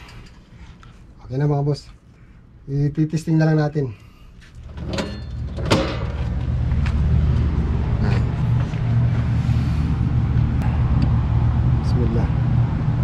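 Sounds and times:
air conditioner blower humming: 0.0s - 13.0s.

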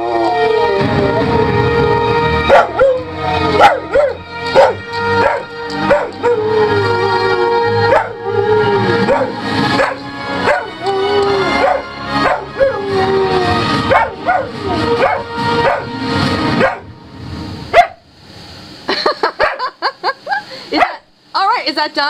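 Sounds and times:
dog howling: 0.0s - 1.6s, 2.4s - 16.0s
song playing: 0.2s - 17.7s
dog yipping: 3.6s - 6.4s, 7.9s - 8.2s, 9.0s - 12.6s, 13.9s - 15.9s, 16.6s - 16.8s, 17.8s - 18.0s.

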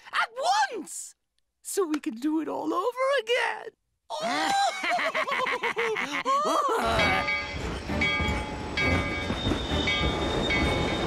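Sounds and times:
cartoon laughter: 4.2s - 7.3s
steam train rumble: 7.0s - 11.0s.

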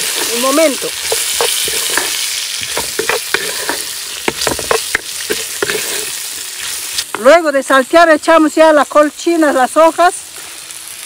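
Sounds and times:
spatula scraping and knocking wok: 0.0s - 7.3s
vegetables sizzling in a wok: 0.0s - 11.0s.

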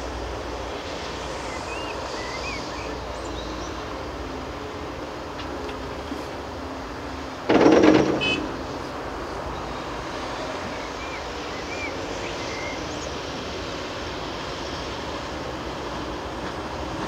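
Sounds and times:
diesel engines running: 0.0s - 17.0s.

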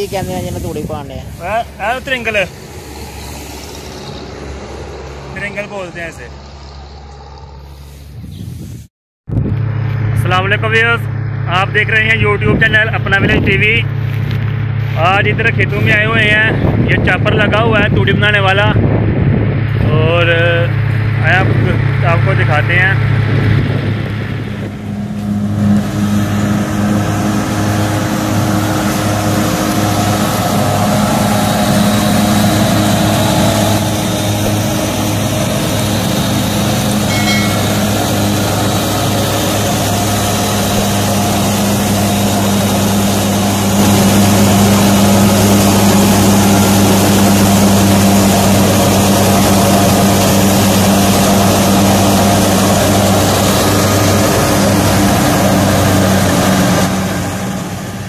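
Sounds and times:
tractor engine hum: 0.0s - 8.3s, 9.3s - 17.5s, 20.4s - 58.0s
straw reaper whirring: 1.2s - 8.2s.

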